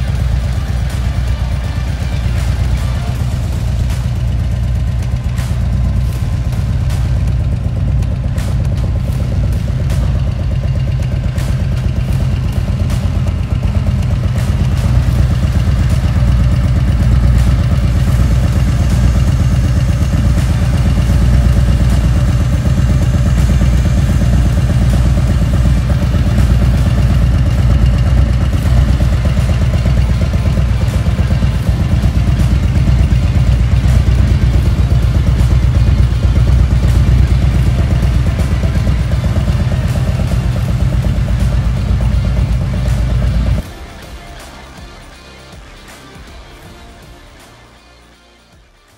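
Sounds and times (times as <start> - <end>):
motorcycle engine idling: 0.0 - 47.8.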